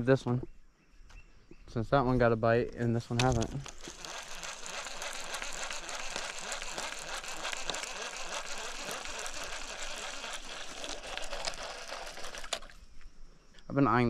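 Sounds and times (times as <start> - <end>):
fishing reel cranking: 3.2 - 12.8.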